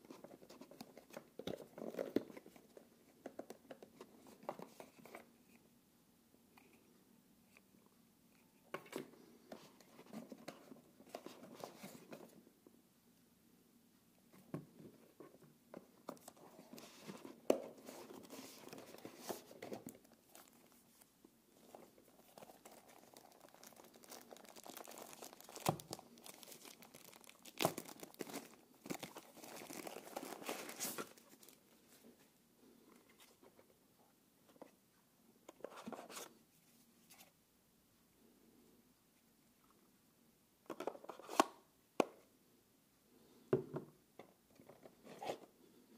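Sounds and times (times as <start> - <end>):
wrapper crinkling: 22.0 - 31.6.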